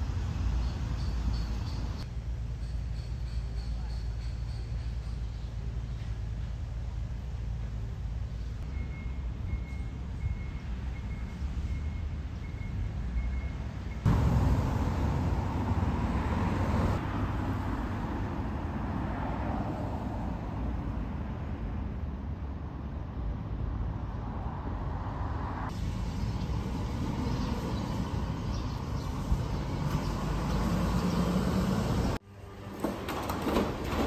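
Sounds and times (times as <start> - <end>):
cars passing: 10.1 - 34.0.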